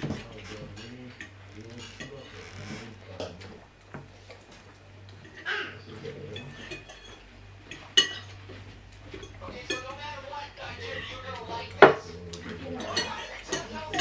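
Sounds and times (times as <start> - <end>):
forks scraping and clinking on plates: 0.0 - 14.0.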